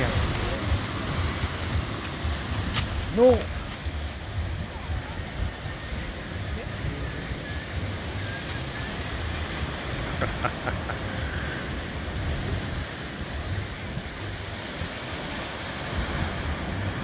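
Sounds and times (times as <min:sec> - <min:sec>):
surf washing against rocks: 0:00.0 - 0:17.0
wind buffeting microphone: 0:00.0 - 0:17.0.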